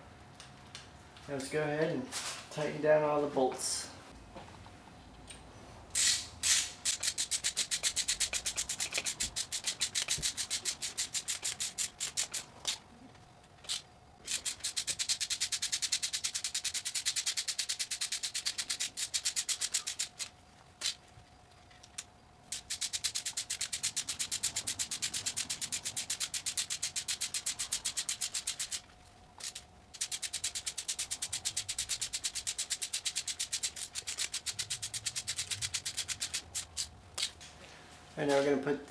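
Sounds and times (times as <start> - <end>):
socket ratchet clicking rapidly: 6.0 - 12.8, 13.7 - 21.0, 22.0 - 37.4.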